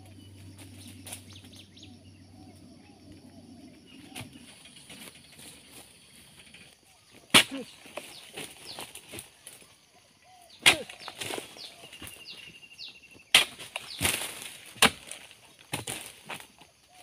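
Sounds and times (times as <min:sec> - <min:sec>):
birds chirping: 0:00.0 - 0:15.6
chisel chopping palm stalks: 0:07.2 - 0:09.3, 0:10.6 - 0:12.4, 0:13.1 - 0:16.5.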